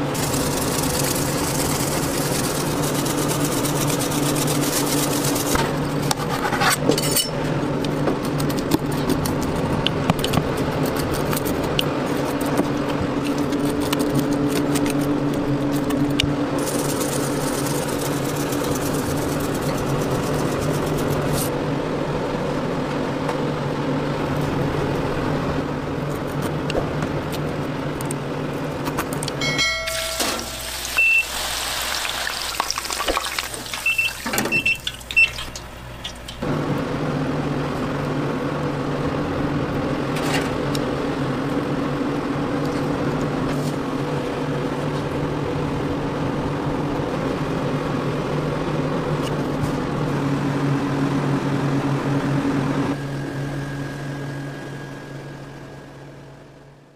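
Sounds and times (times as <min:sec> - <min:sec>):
kitchen machinery humming: 0:00.0 - 0:56.9
short high beeps: 0:29.4 - 0:31.4.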